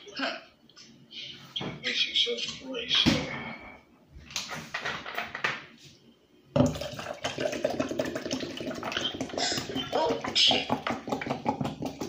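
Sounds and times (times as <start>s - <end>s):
liquid pouring from bottle: 6.6s - 12.0s.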